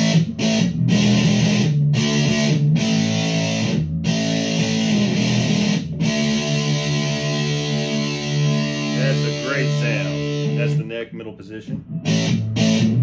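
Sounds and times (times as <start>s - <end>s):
fuzzed electric guitar chords: 0.0s - 13.0s.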